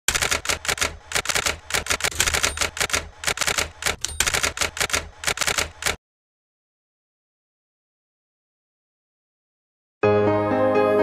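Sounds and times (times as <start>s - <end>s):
typewriter keys clacking: 0.1s - 6.0s.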